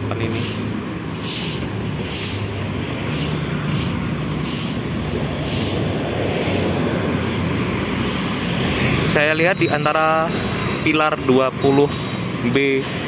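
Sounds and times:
cars and motorcycles driving by: 0.0s - 13.0s.

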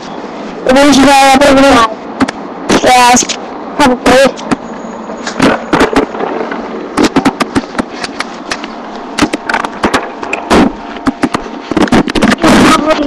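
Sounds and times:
microphone handling knocks and rustles: 5.3s - 13.0s.

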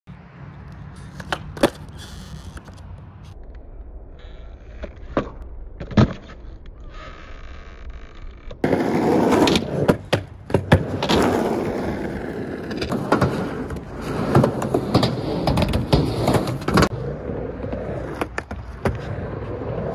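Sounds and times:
skateboard wheels rolling on ramp: 0.7s - 19.9s
skateboard slapping: 1.0s - 2.0s, 8.6s - 19.9s
skateboard tail pops and clacks: 1.1s - 1.9s, 8.6s - 11.4s, 12.7s - 16.9s, 17.8s - 19.1s.

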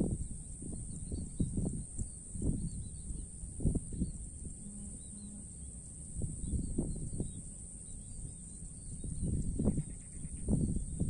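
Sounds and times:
high insect buzz: 0.0s - 11.0s
faint bird chirps: 3.9s - 5.7s, 6.4s - 11.0s.

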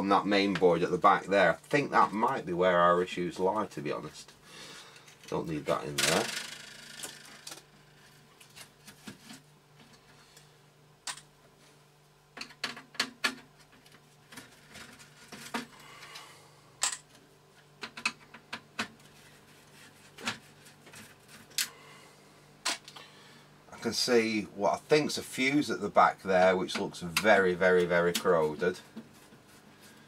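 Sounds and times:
computer parts clicking and knocking: 12.4s - 15.7s, 17.8s - 19.0s.

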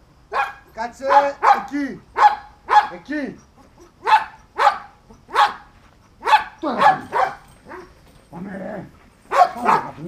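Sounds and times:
dog barking sharply: 0.3s - 3.0s, 4.0s - 7.9s, 9.3s - 10.0s.

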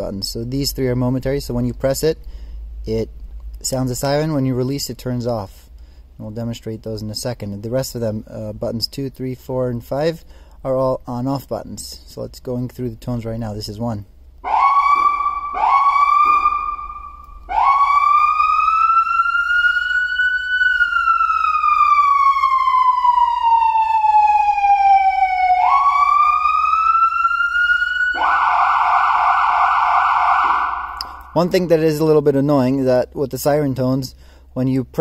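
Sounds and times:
electronic police siren: 14.4s - 31.5s.

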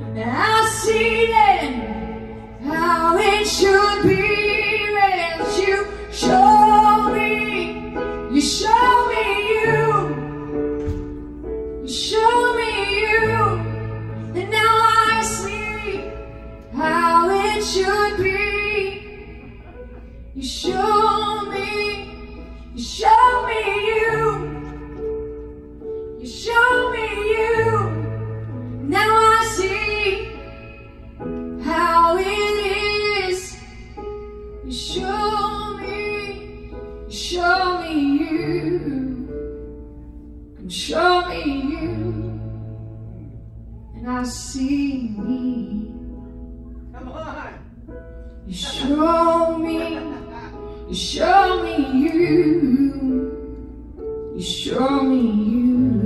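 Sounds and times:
woman singing worship song: 48.5s - 53.8s.

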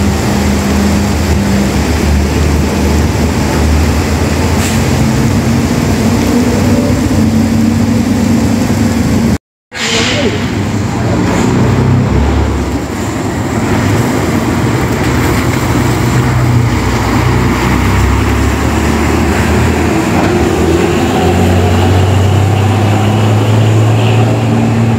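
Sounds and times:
tyres hissing on wet pavement: 0.0s - 8.9s
bus diesel engine droning: 0.0s - 24.9s.

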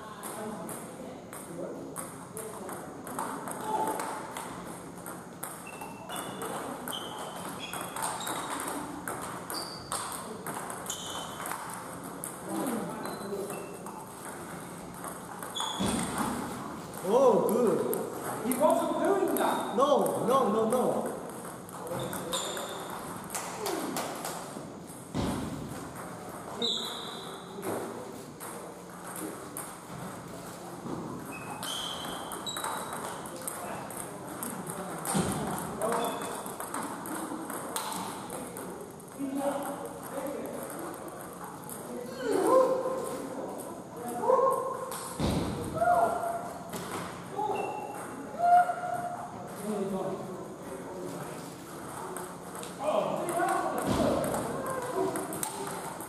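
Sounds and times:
table tennis ball clicks and pings: 0.2s - 16.4s, 17.0s - 23.6s, 28.4s - 30.1s, 31.3s - 41.9s, 51.9s - 56.0s
brief high squeaks: 10.8s - 11.4s, 15.5s - 16.1s, 22.0s - 22.9s, 26.6s - 27.5s, 31.3s - 32.9s.

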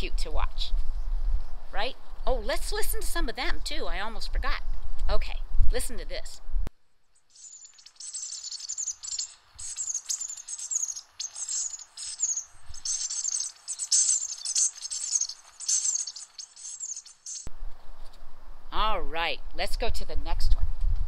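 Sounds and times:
birds twittering: 7.3s - 17.5s.

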